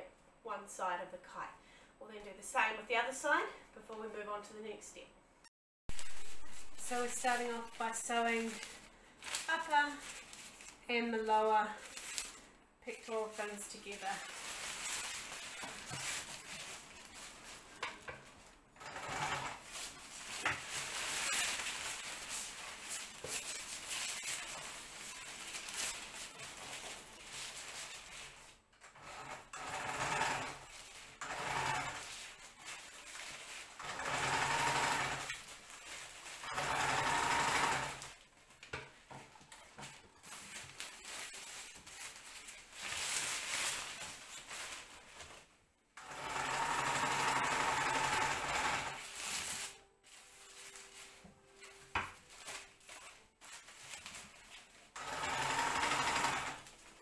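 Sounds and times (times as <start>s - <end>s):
sewing machine stitching: 18.8s - 19.7s, 28.9s - 32.1s, 33.8s - 35.5s, 36.4s - 38.0s, 46.0s - 49.0s, 55.0s - 56.7s.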